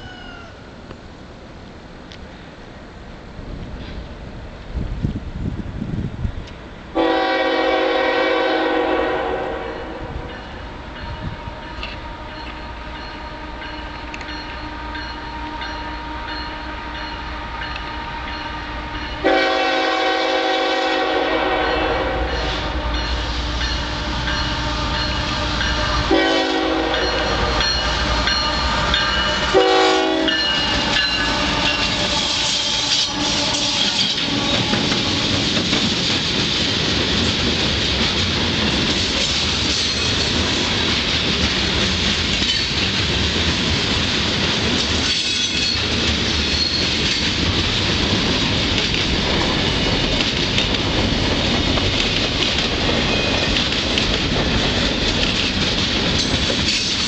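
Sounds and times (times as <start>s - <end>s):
diesel locomotive engines: 0.0s - 57.0s
train air horn blasts: 7.0s - 10.4s, 11.0s - 35.6s
train wheels clattering on rails: 10.2s - 57.0s.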